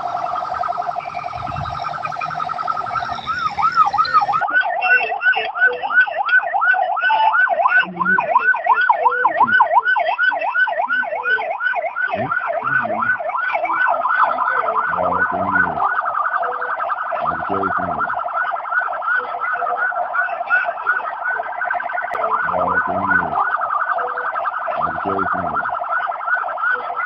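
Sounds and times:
police siren wailing: 0.0 - 27.0.

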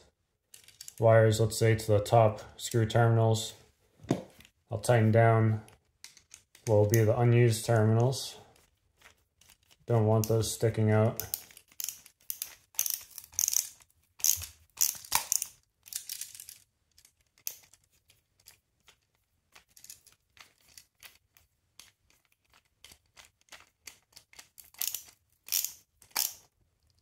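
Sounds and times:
screwdriver clicking on metal screws: 11.2 - 17.8, 21.8 - 27.0.

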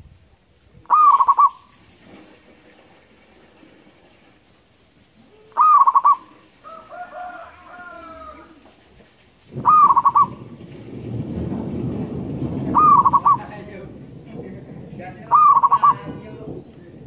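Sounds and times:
dove cooing: 0.8 - 1.7, 5.3 - 8.7, 9.5 - 10.6, 12.7 - 13.6, 15.2 - 16.6.

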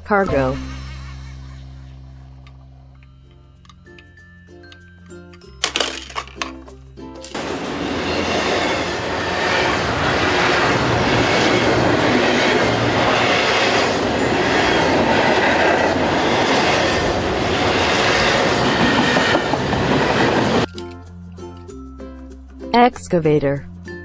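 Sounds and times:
freight train passing: 7.3 - 20.7.

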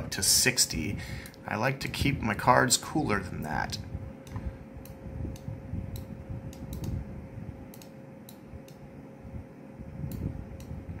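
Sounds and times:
faint hum: 0.0 - 11.0
computer mouse clicks: 4.2 - 7.0, 7.7 - 8.8.

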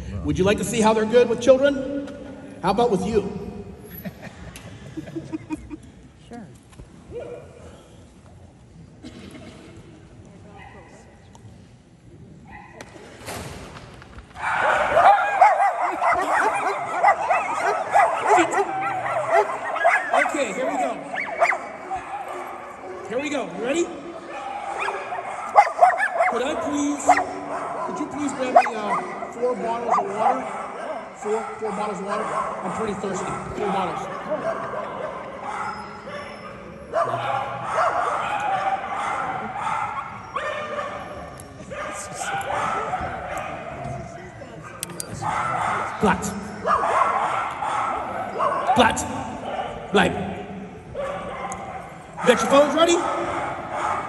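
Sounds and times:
dogs whining and yipping: 14.4 - 23.0, 34.2 - 43.5
dog yipping and whining: 35.5 - 37.2.

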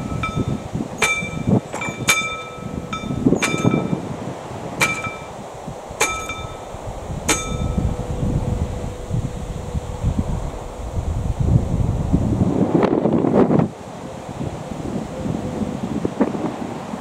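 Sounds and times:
level crossing bell ringing: 0.0 - 4.0
wind rumble on microphone: 0.0 - 17.0.

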